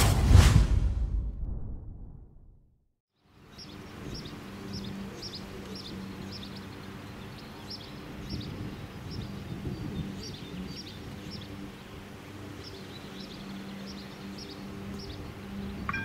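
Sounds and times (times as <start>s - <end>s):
bird chirping: 3.4s - 16.0s.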